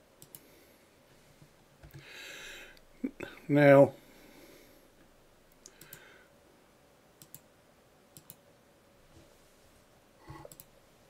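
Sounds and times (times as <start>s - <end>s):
computer mouse clicking: 0.2s - 0.5s, 5.5s - 6.1s, 7.2s - 7.5s, 8.2s - 8.4s, 10.3s - 10.8s.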